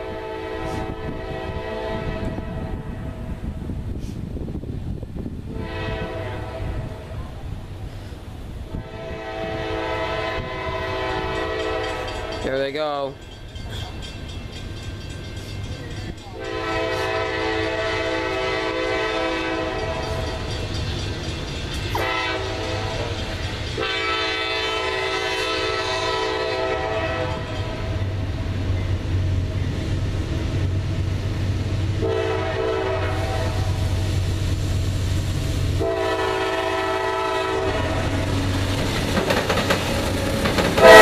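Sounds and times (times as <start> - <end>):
locomotive air horn blasts: 0.0 - 3.2, 5.5 - 7.0, 8.7 - 12.4, 16.4 - 20.3, 22.0 - 23.2, 23.8 - 27.9, 32.0 - 34.0, 35.8 - 38.4, 40.8 - 41.0
locomotive engine rumble: 0.0 - 41.0.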